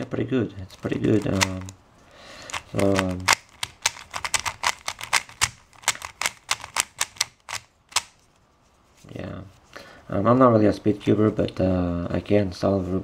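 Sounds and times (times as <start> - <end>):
plastic puzzle cube clicking: 0.7 - 1.8, 2.4 - 8.2.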